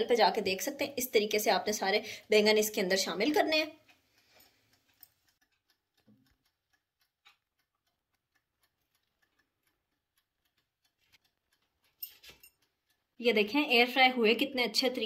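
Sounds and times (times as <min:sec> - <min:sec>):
faint clicks and taps: 0:03.0 - 0:14.0.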